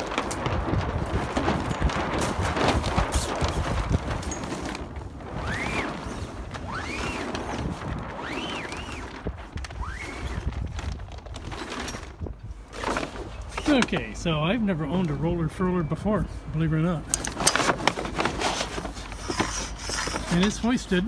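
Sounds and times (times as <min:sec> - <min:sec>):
wind on microphone: 0:00.0 - 0:13.6
sail cloth rustling and flapping: 0:00.0 - 0:21.0.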